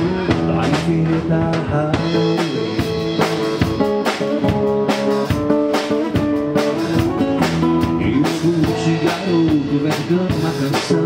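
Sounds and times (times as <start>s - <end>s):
drum kit: 0.0s - 11.0s
acoustic guitar strummed: 2.2s - 11.0s.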